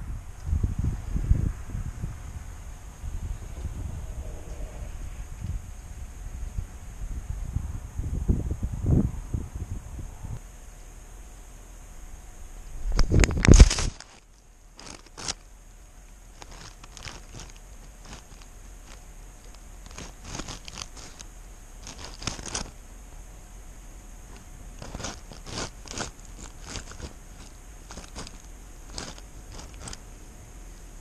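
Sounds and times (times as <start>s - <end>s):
cat chewing with wet crunches: 16.4s - 22.8s, 24.3s - 30.1s.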